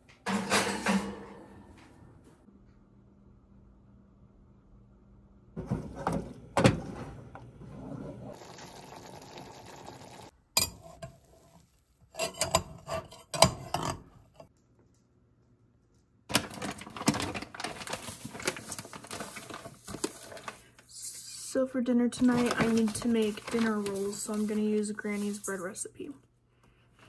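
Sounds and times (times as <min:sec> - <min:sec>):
clattering and scraping on metal pot: 0:10.6 - 0:14.5.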